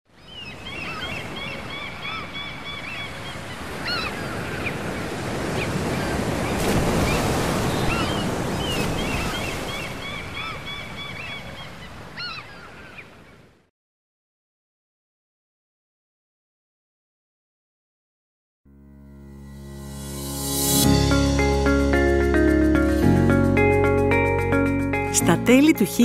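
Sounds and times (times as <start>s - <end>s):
seagulls calling: 0.2s - 13.4s
sea surf washing in: 2.9s - 11.3s.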